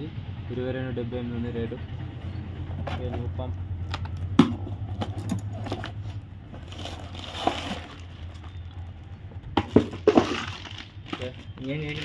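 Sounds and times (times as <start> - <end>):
low steady hum: 0.0 - 12.0
cardboard box being opened: 4.6 - 12.0
plastic bag crinkling: 6.6 - 9.2, 10.0 - 12.0.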